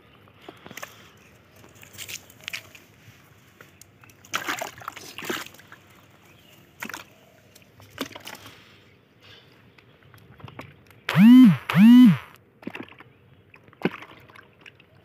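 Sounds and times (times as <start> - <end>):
wet net and fish slapping: 4.2 - 5.6.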